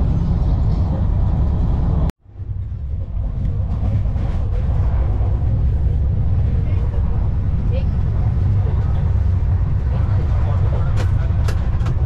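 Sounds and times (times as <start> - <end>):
train rumbling: 0.0 - 12.0.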